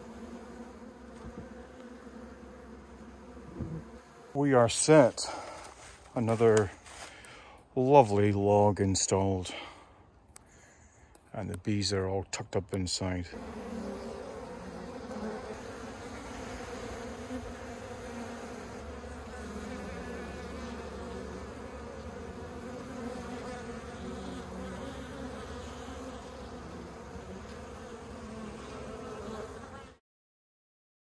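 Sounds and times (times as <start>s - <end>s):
honey bees buzzing: 0.0s - 5.9s, 13.3s - 30.0s.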